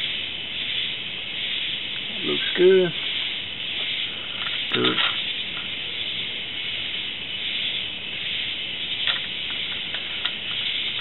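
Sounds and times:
steady hiss: 0.0 - 11.0
metal parts clicking: 4.4 - 5.7.

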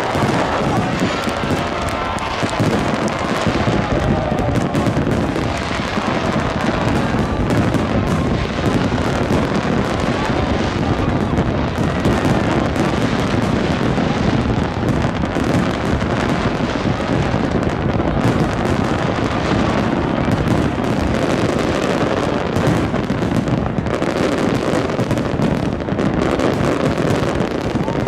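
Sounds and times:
fireworks bursts and crackles: 0.0 - 28.0
wind buffeting microphone: 0.0 - 28.0.

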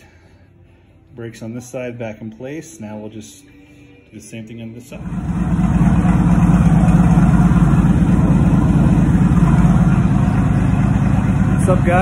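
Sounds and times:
motorcycle engine rumbling: 5.0 - 12.0.

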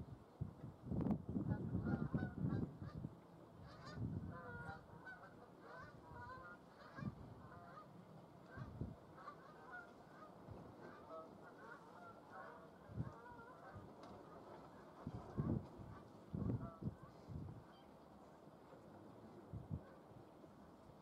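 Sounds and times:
geese honking: 3.7 - 7.9, 8.5 - 17.0.

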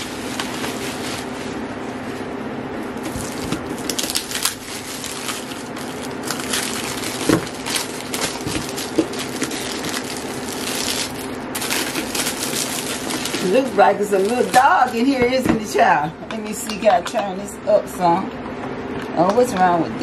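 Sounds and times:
plastic wrapping crinkling: 0.0 - 15.2.

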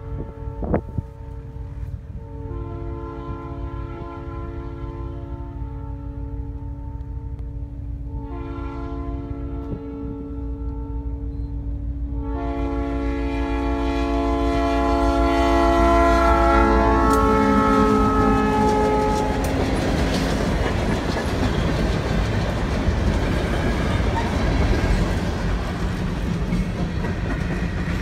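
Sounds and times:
locomotive horn: 0.0 - 20.5
locomotive engine rumble: 0.0 - 28.0
train wheel clatter: 17.0 - 28.0.

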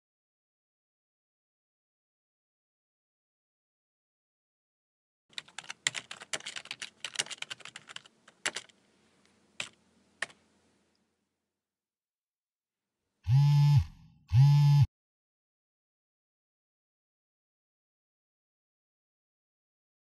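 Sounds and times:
typing on laptop keyboard: 5.3 - 8.8, 9.6 - 10.4
loud buzzy electronic tone: 13.3 - 14.9.

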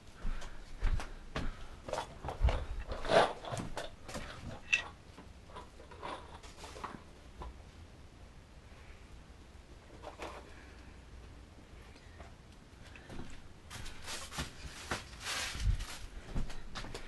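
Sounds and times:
tools and plastic being handled: 1.9 - 7.6, 9.9 - 10.7, 13.7 - 17.0.

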